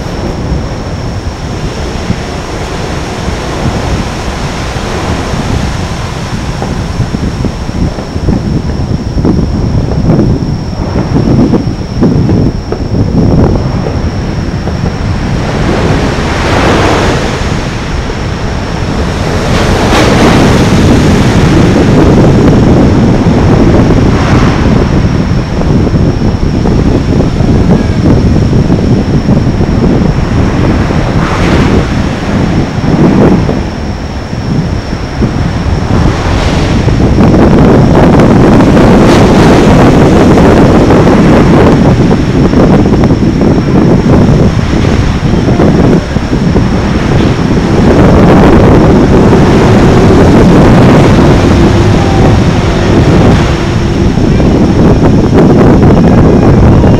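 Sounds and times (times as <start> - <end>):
traffic rumble: 0.0 - 16.5, 41.6 - 56.9
steady high whine: 0.0 - 56.9
wind buffeting microphone: 0.0 - 56.9.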